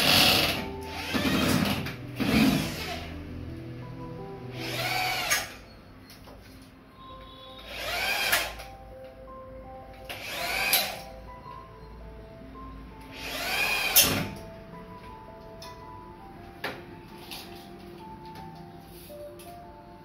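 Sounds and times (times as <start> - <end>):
electric drill whining into tile: 0.0 - 3.1, 4.6 - 5.6, 7.6 - 8.6, 10.1 - 11.0, 13.1 - 14.3
background music: 0.0 - 20.0.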